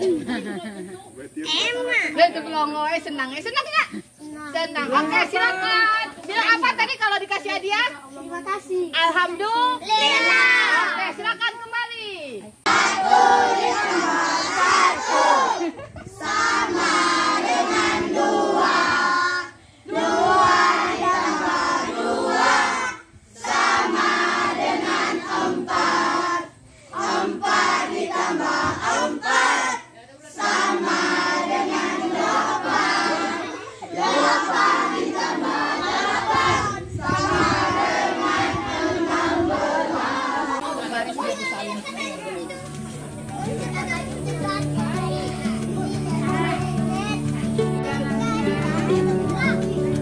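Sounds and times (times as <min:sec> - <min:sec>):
children singing in unison: 0:12.6 - 0:40.8.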